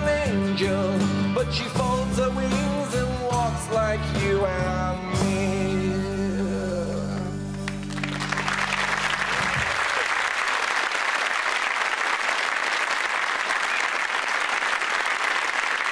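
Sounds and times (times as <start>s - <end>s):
audience applause: 7.6s - 15.9s.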